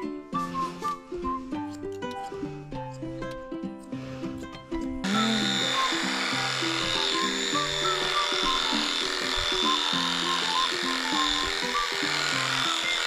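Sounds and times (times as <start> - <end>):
background music: 0.0 - 13.0
electric pet clippers whining: 5.0 - 13.0.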